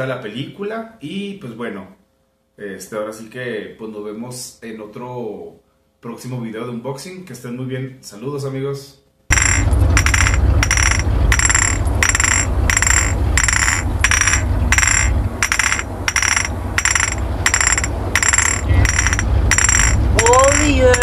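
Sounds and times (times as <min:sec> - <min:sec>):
low steady rumble: 0:09.3 - 0:21.0.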